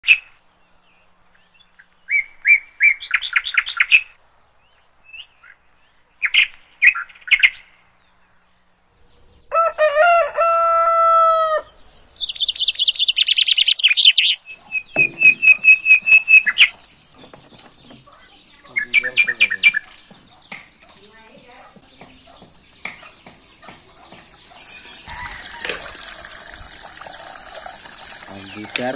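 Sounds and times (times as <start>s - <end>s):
rooster crowing: 9.5s - 11.8s, 24.0s - 28.0s
small birds chirping: 11.6s - 28.9s.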